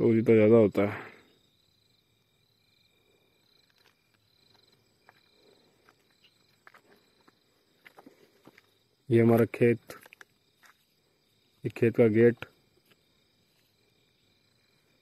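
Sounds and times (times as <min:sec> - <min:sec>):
crickets chirping: 0:00.0 - 0:15.0
footsteps on dirt: 0:03.6 - 0:11.0.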